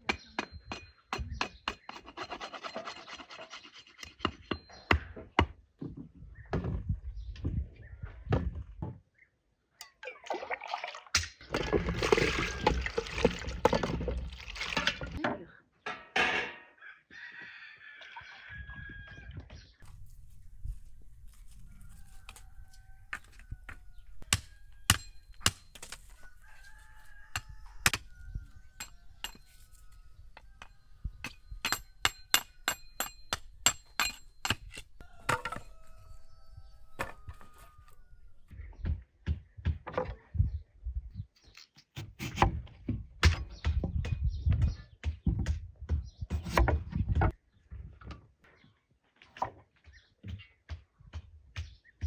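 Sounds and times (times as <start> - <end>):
rooster crowing: 16.8 - 19.3, 21.5 - 25.2, 26.0 - 31.9, 35.0 - 38.5.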